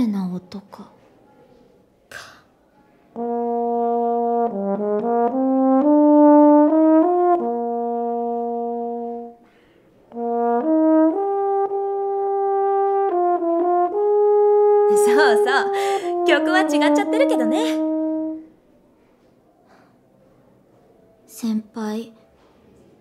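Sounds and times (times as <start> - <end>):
euphonium melody: 3.1 - 9.4, 10.1 - 18.6.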